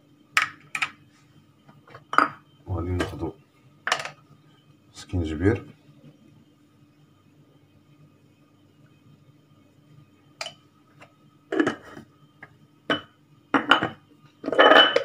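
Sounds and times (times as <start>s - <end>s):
glass jar knocking and clinking: 12.9s - 15.0s.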